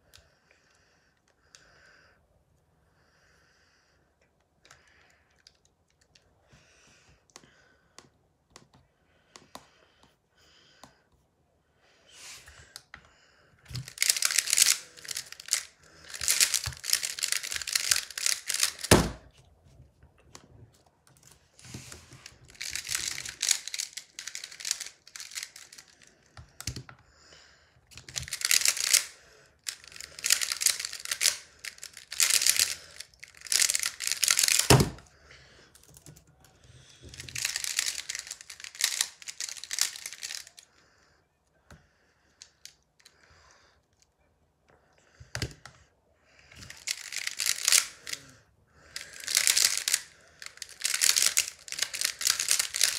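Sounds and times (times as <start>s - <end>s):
plastic puzzle clacking: 13.7s - 19.3s, 21.2s - 26.9s, 28.0s - 35.0s, 37.0s - 40.6s, 46.6s - 48.3s, 48.9s - 52.9s.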